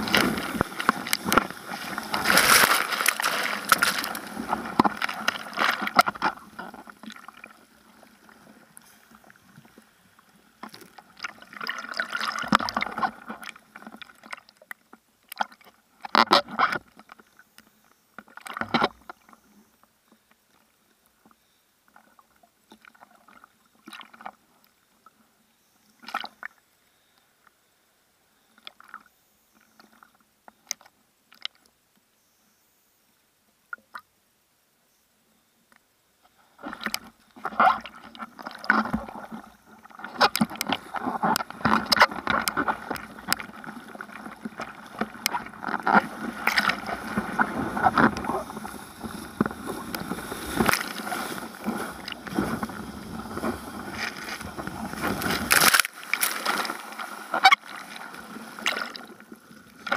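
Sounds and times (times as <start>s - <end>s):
sharp water splashes: 0.0s - 6.2s, 53.5s - 59.1s
seawater rushing and splashing: 0.0s - 8.6s, 40.0s - 59.9s.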